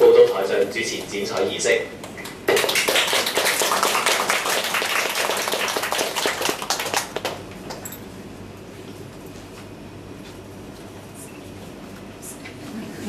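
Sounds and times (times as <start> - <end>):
audience applauding: 2.5 - 7.4.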